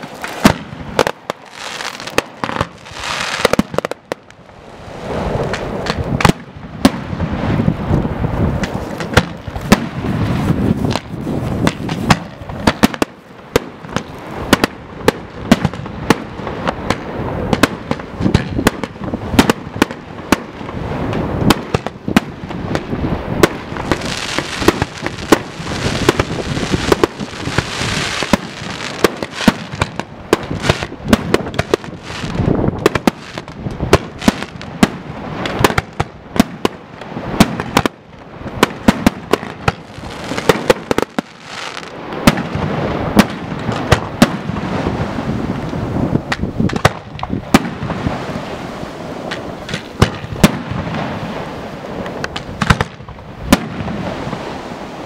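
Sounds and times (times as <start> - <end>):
crackling hiss of fireworks: 0.0 - 55.0
firework bursts and bangs: 0.0 - 55.0.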